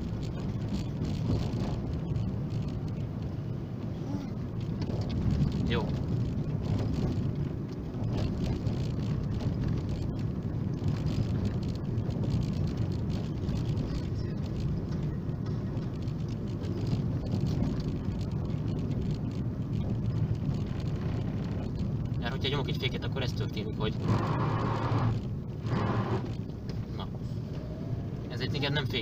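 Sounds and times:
car engine running: 0:00.0 - 0:29.0
tyres rolling on snowy road: 0:00.0 - 0:29.0.

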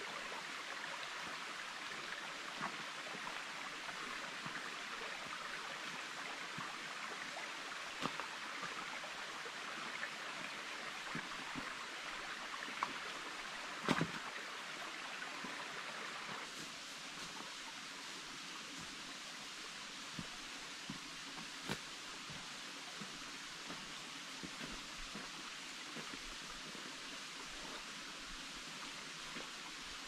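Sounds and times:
creek flowing over stones: 0:00.0 - 0:30.0
footsteps on rocks: 0:20.9 - 0:22.5.

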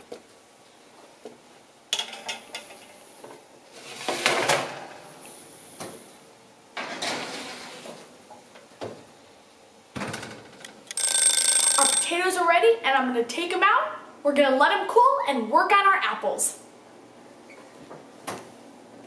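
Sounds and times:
baking sheet scraping on oven rack: 0:03.7 - 0:04.8, 0:06.8 - 0:08.1.

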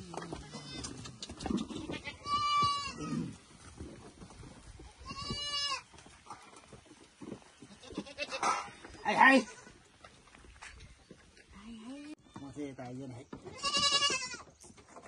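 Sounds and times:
young goat bleating: 0:00.3 - 0:03.3, 0:05.0 - 0:05.9, 0:07.7 - 0:09.7, 0:13.5 - 0:14.5.

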